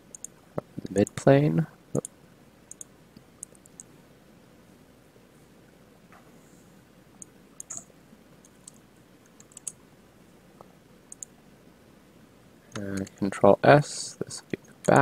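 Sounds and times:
mouse and keyboard clicks: 0.1s - 1.2s, 2.7s - 3.9s, 7.2s - 9.8s, 11.1s - 11.3s, 12.7s - 13.2s, 14.5s - 15.0s.

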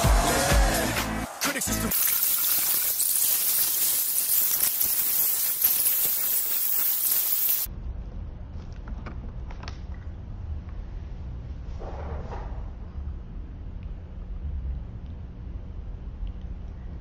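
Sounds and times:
loud static hiss: 2.0s - 7.7s
low hum: 7.7s - 17.0s.

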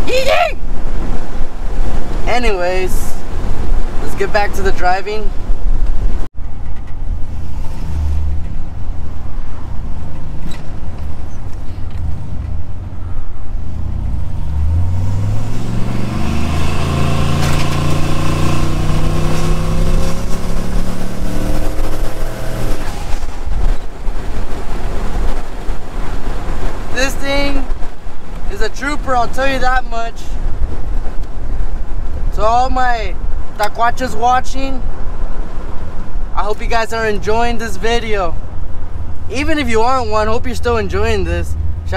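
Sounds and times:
turbocharged engine revving: 13.6s - 23.8s.

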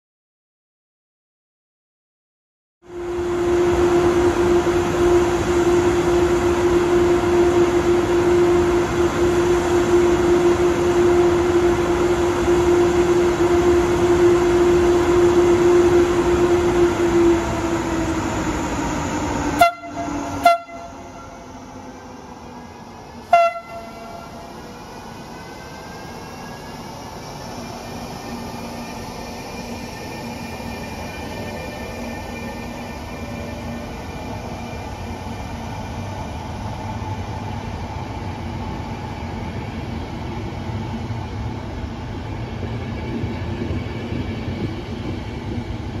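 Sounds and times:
loud rail noise: 2.8s - 46.0s
train horn: 19.5s - 21.6s, 23.2s - 24.6s
short sharp horn bursts: 19.6s - 21.4s, 23.3s - 24.4s.

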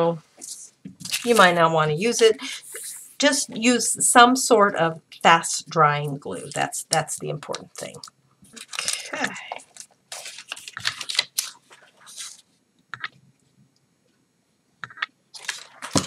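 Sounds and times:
paper rustling and crinkling: 0.4s - 1.6s, 8.5s - 12.5s, 15.4s - 16.0s.

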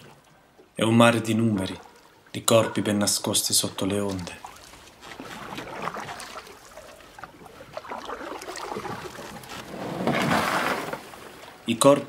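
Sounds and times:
water drips: 0.0s - 9.6s
water lapping and trickling: 0.0s - 12.0s.

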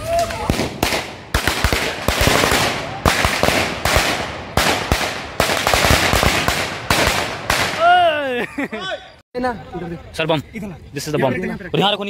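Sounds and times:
firecrackers banging: 0.0s - 7.9s.

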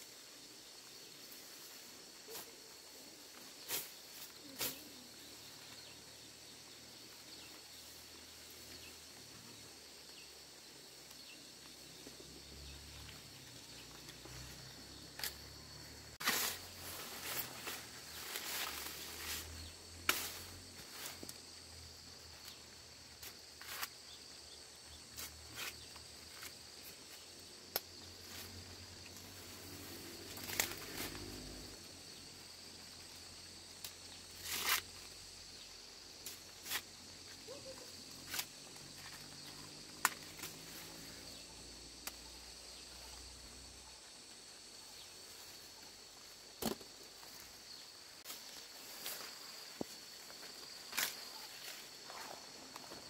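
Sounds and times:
insects chirring: 0.0s - 53.0s
corn ears snapping off stalks: 20.0s - 20.4s, 30.3s - 31.3s, 39.9s - 40.6s, 46.6s - 47.0s, 50.8s - 51.4s.

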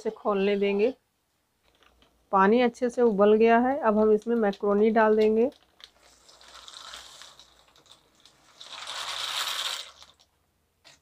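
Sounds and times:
dry pasta poured into boiling water: 5.5s - 10.3s.

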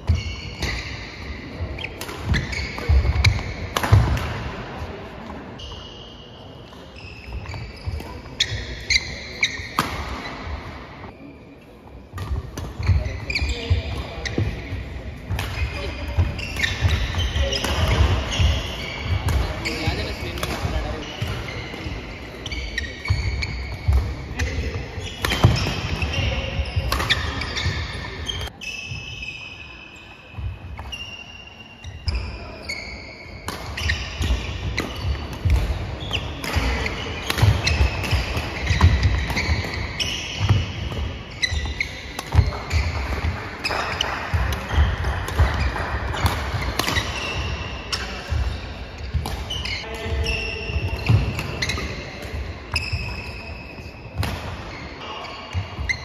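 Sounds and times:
rackets striking shuttlecock: 1.8s - 4.4s, 23.0s - 26.2s, 26.8s - 28.5s, 33.4s - 53.3s
shoes squeaking on wooden floor: 33.8s - 54.0s.

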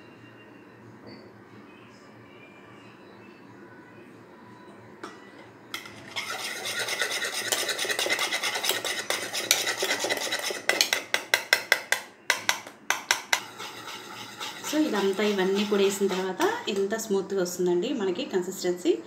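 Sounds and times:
whisk beating batter in bowl: 5.8s - 11.7s, 13.0s - 17.0s
whisk clicking against bowl: 6.1s - 16.9s.

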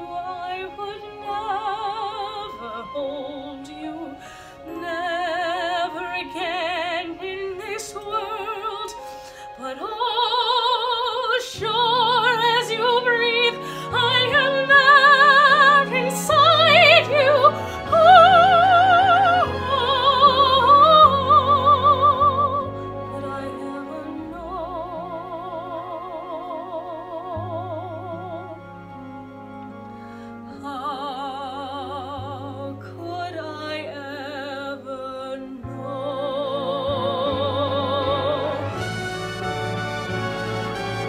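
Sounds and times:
woman singing operatically: 0.0s - 28.5s, 30.5s - 38.9s
instrumental accompaniment: 35.4s - 41.0s.

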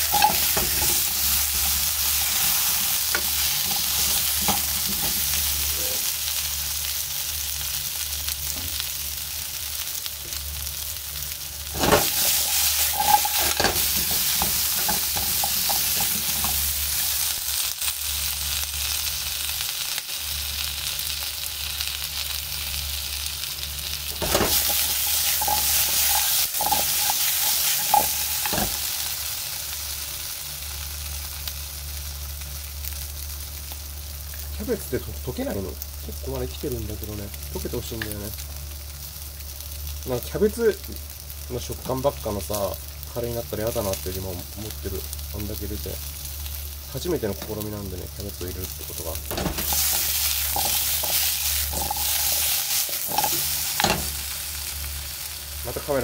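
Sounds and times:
potatoes clattering in pan: 0.0s - 5.4s, 11.7s - 17.2s, 24.2s - 29.0s, 49.3s - 54.3s
potatoes sizzling in oil: 0.0s - 56.0s.

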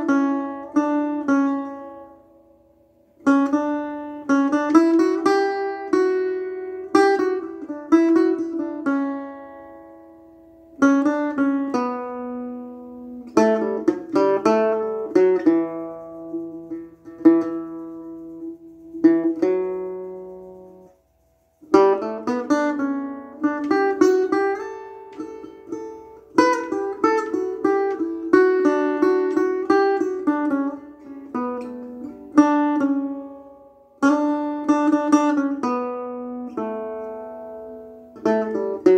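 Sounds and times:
acoustic guitar playing: 0.0s - 38.9s.

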